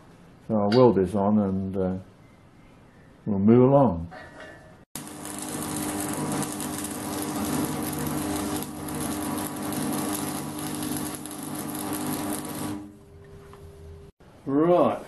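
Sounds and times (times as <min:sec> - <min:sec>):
welding arc crackling: 0:05.0 - 0:13.0
welder hum: 0:05.0 - 0:14.2.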